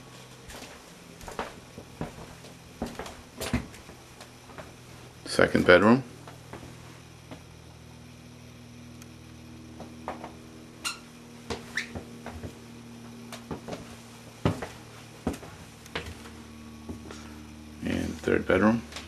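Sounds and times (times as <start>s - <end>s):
low steady hum: 0.0s - 19.0s
footsteps soft knocks: 0.5s - 4.8s, 9.8s - 10.4s, 11.4s - 12.6s, 13.3s - 17.2s.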